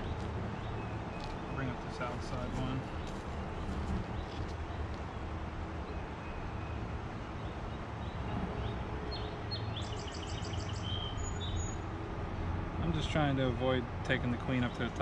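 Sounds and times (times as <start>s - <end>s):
birds chirping: 0.0s - 11.9s.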